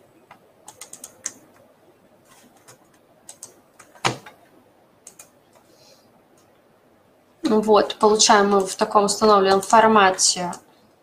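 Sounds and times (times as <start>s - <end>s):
mouse and keyboard clicks: 2.6s - 4.3s, 5.0s - 5.7s.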